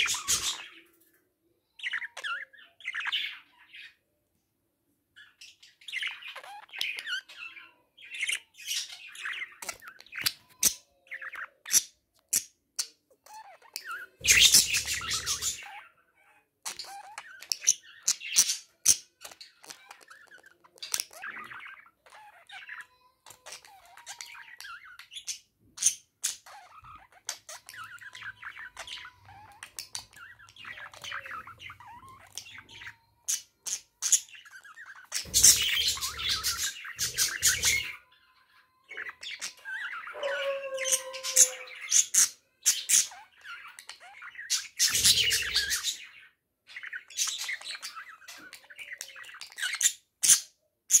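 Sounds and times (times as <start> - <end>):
budgerigar warbling and chattering: 13.3 - 38.1, 38.9 - 46.1.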